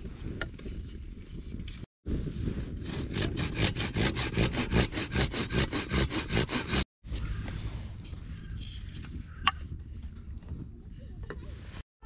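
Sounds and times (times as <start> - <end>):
pruning saw cutting branch: 2.9 - 6.9.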